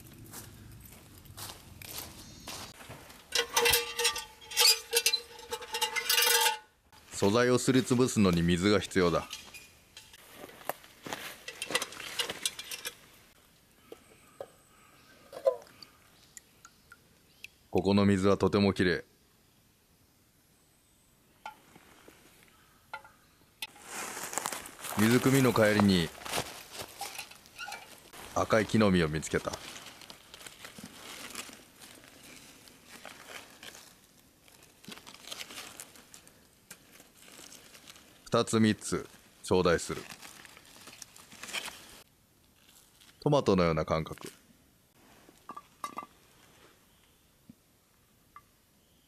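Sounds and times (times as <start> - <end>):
footsteps crunching through dry leaves: 0.0 - 3.2, 10.2 - 12.4, 23.6 - 38.2, 39.1 - 42.0
metal tin clicks and splashes: 3.2 - 6.7, 11.4 - 13.1, 27.0 - 28.0.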